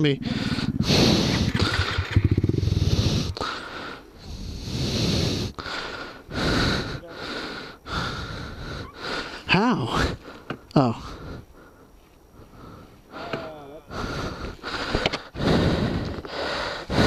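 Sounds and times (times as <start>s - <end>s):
low rumble: 0.0s - 3.4s
person breathing hard: 0.2s - 17.0s.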